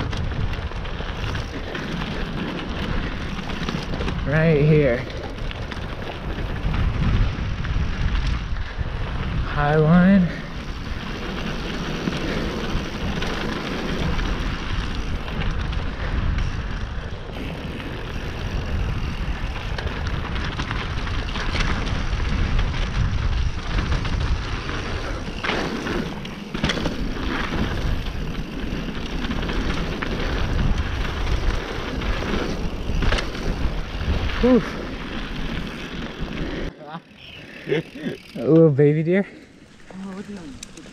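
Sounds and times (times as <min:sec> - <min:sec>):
wind buffeting microphone: 0:00.0 - 0:36.7
bike rattling over bumps: 0:00.0 - 0:40.9
bike tyres rolling over rough trail: 0:00.0 - 0:40.9.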